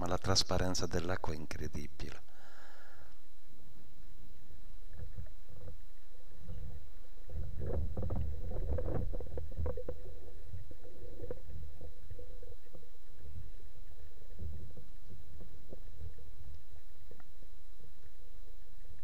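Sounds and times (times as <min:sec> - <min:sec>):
underwater low rumble: 0:03.3 - 0:19.0
bubbly clicks and crackles: 0:04.8 - 0:19.0.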